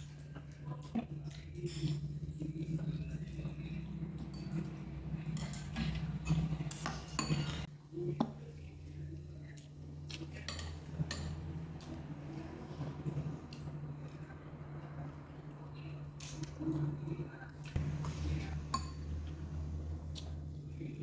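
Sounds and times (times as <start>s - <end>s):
steady low hum: 0.0s - 21.0s
cutlery clinking on ceramic bowls: 4.2s - 7.7s.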